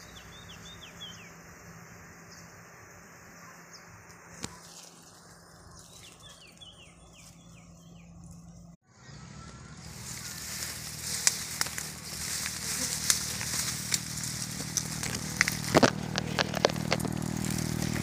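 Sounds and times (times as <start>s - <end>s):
twigs and leaves crackling: 4.0s - 8.7s, 9.8s - 18.0s
bees buzzing: 9.7s - 18.0s.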